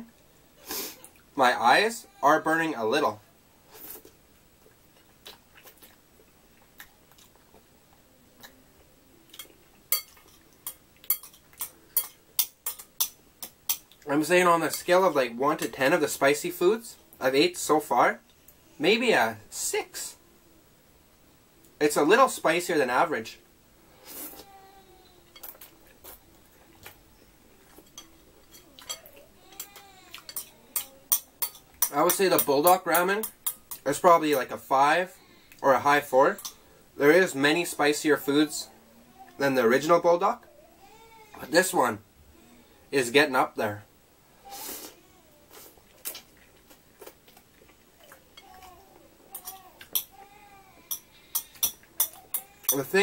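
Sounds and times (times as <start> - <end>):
slurping and mouth sounds: 3.7 - 7.7.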